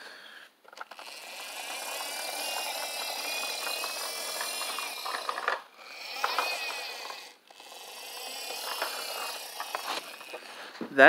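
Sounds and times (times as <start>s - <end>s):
toy truck gears whirring: 0.0s - 10.8s.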